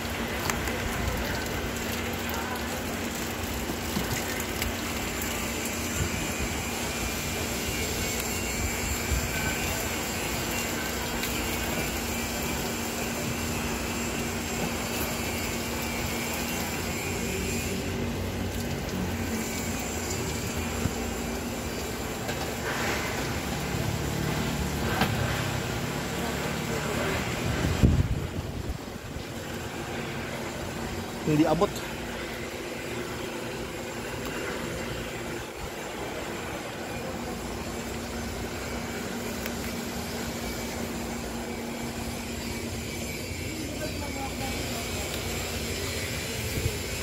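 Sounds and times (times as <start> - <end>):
mechanical drone with low hum: 4.6 - 26.2, 31.8 - 47.0.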